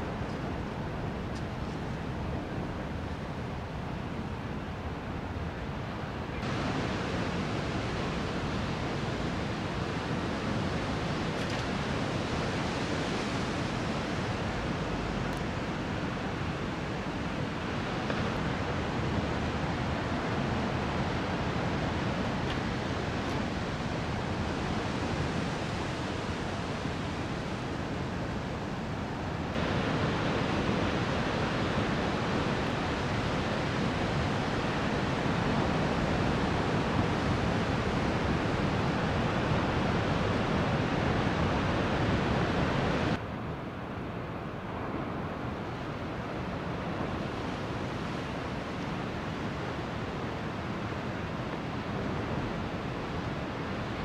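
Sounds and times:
ocean waves breaking: 0:28.9 - 0:43.2.

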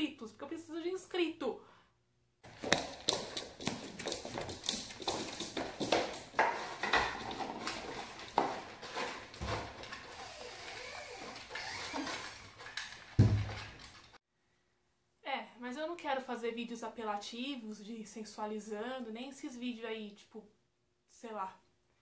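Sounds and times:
bowls clinking and scraping: 0:05.2 - 0:14.2.

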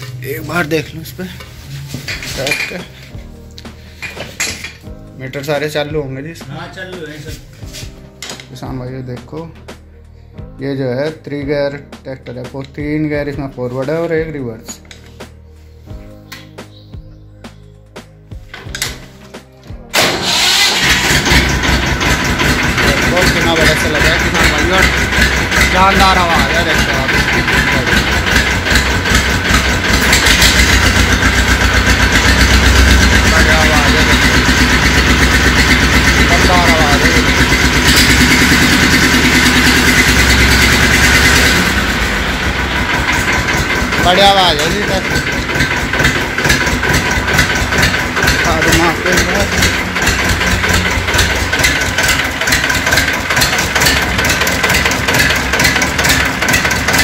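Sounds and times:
diesel tractor engine idling: 0:19.9 - 0:57.0.

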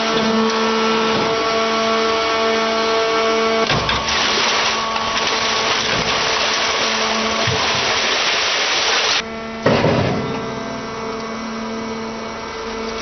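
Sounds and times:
hydraulic press whine: 0:00.0 - 0:08.3, 0:09.0 - 0:13.0.

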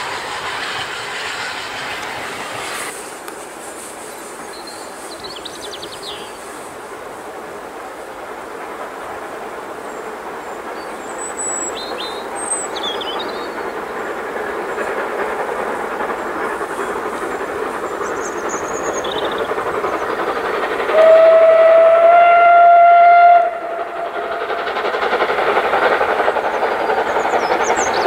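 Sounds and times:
steam locomotive exhaust: 0:00.0 - 0:28.0
steam whistle: 0:20.9 - 0:24.2.

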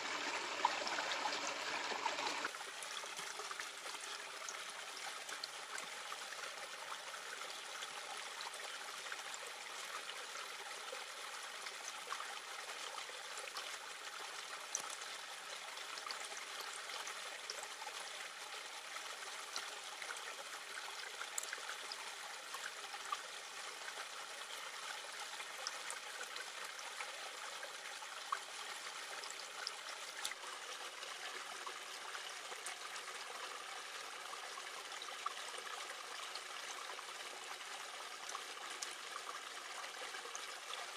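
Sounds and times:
stream trickling over rocks: 0:00.0 - 0:40.9.

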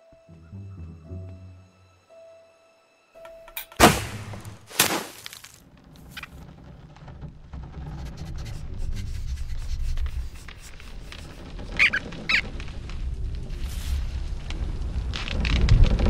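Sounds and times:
short squeaks: 0:05.8 - 0:09.5, 0:10.5 - 0:12.8.

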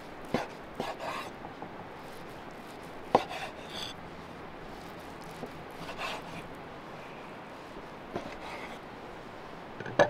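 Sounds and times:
knife scrape: 0:00.3 - 0:01.4, 0:02.0 - 0:04.0, 0:04.7 - 0:06.5, 0:08.2 - 0:08.8.

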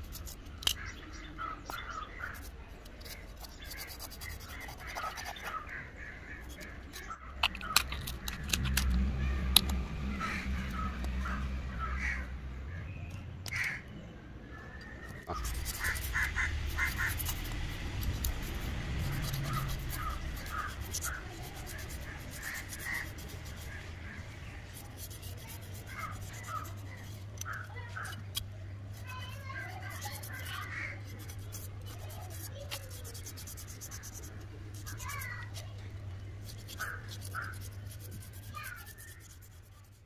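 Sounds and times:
low rumble: 0:07.4 - 0:13.4
crows cawing: 0:10.2 - 0:12.3, 0:13.5 - 0:13.8, 0:15.8 - 0:17.2, 0:22.4 - 0:23.2, 0:27.4 - 0:28.2, 0:36.8 - 0:37.6.

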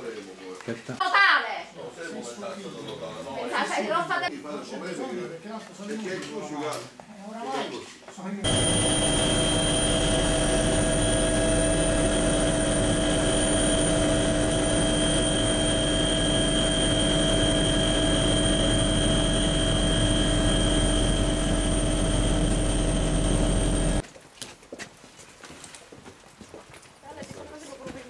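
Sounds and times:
helicopter engine and rotor noise: 0:08.4 - 0:24.0
high turbine whine: 0:08.4 - 0:24.0.

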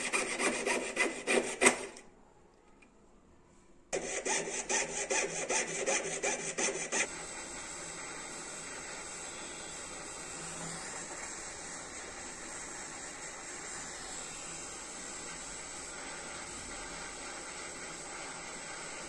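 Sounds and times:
piercing saw cutting metal: 0:00.0 - 0:02.0, 0:04.0 - 0:07.1
gas torch flame hissing: 0:04.0 - 0:19.0.

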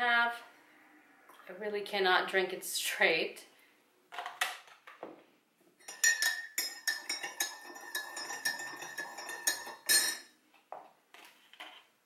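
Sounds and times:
teaspoon stirring in ceramic mug: 0:05.8 - 0:10.3.

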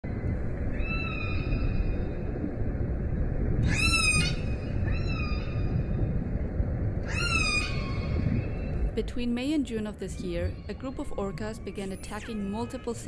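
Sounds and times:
killer whale calls: 0:03.6 - 0:06.1, 0:07.0 - 0:08.8.

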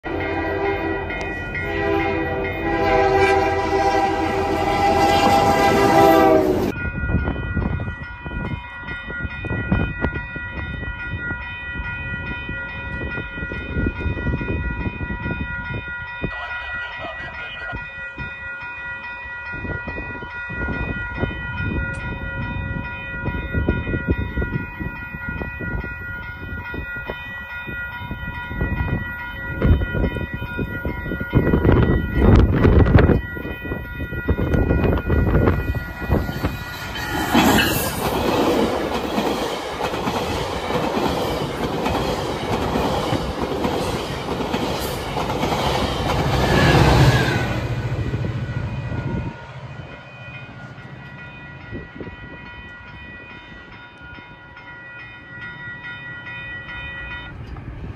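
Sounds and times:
locomotive air horn chord: 0:00.0 - 0:06.7
low rumble of approaching train: 0:00.0 - 0:57.9
steady high tones: 0:16.4 - 0:57.9.

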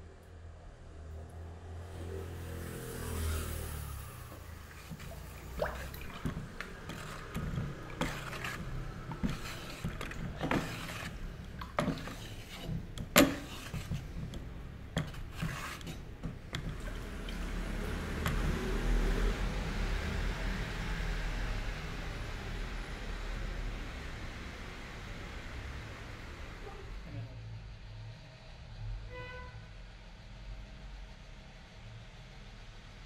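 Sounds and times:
liquid sloshing in a pail: 0:04.3 - 0:19.4
stick knocking against metal pail: 0:05.6 - 0:16.9.

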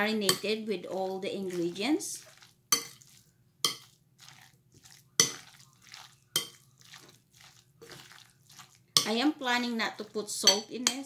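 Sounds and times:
spoon scraping glass bowl: 0:00.1 - 0:09.3
spoon clinking against glass bowl: 0:02.7 - 0:04.0, 0:05.2 - 0:05.6, 0:06.3 - 0:06.9, 0:10.4 - 0:11.0.

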